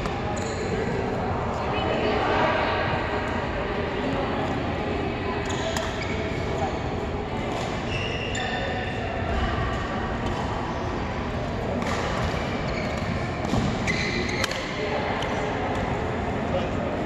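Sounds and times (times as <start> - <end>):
shoes squeaking on court floor: 5.4 - 6.8, 7.5 - 9.0, 11.9 - 14.8
racket striking shuttlecock: 11.8 - 15.3.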